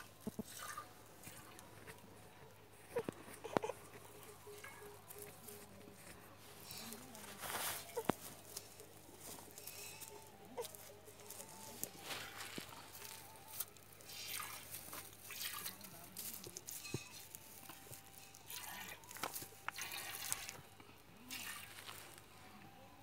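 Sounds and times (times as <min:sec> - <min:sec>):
milk squirting into steel pot: 0:00.0 - 0:01.6, 0:14.0 - 0:15.8, 0:18.5 - 0:20.6, 0:21.3 - 0:22.0.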